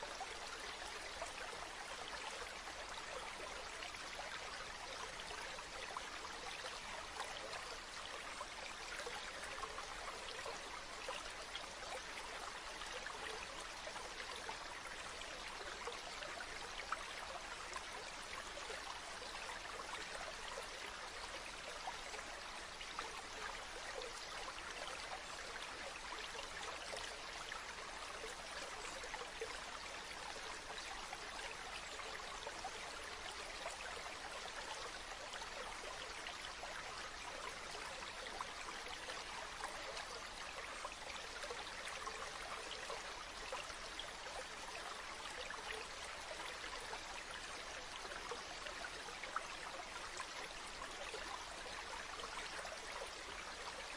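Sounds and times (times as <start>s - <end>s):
stream flowing: 0.0s - 53.9s.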